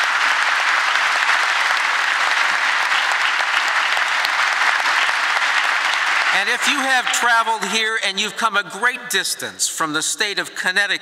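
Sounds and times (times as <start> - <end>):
audience applause: 0.0 - 7.8.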